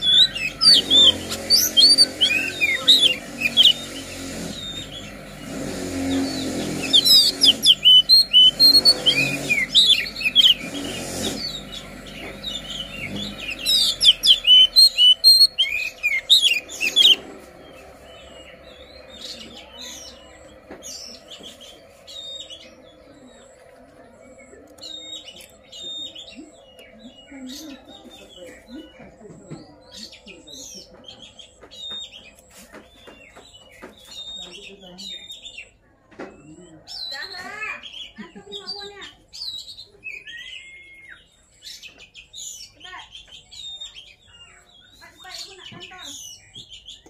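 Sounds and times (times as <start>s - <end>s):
bird singing chirps and whistles: 0.0s - 5.1s, 6.2s - 17.2s, 39.3s - 45.0s.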